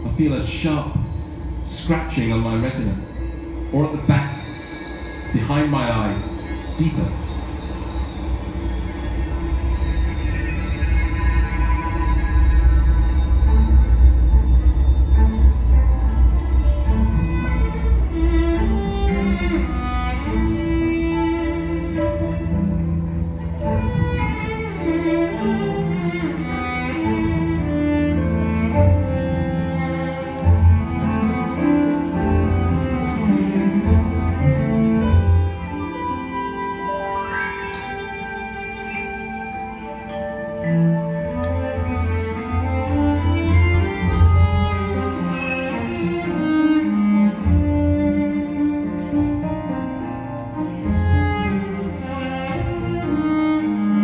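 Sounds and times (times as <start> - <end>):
cello bowing slow notes: 0.0 - 54.0
small ensemble playing: 15.1 - 54.0.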